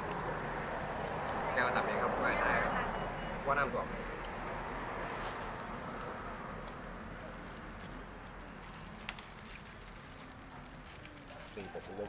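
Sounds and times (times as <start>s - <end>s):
outdoor background hiss: 0.0s - 12.0s.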